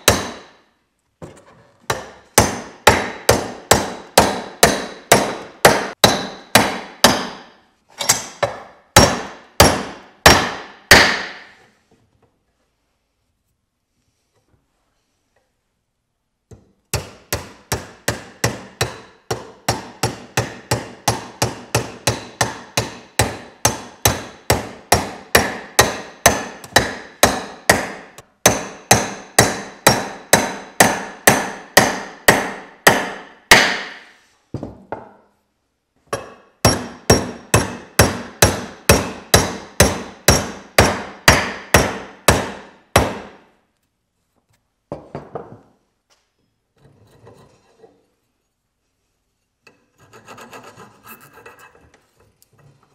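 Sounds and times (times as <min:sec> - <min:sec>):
hammer tapping metal wedge: 0:00.0 - 0:00.5, 0:01.9 - 0:11.5, 0:16.5 - 0:34.0, 0:36.1 - 0:43.3.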